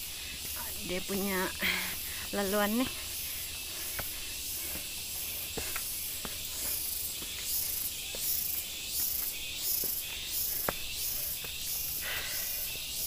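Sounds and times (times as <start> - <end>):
pulsing insect chorus: 0.0 - 13.0
footsteps on dirt: 2.2 - 12.2.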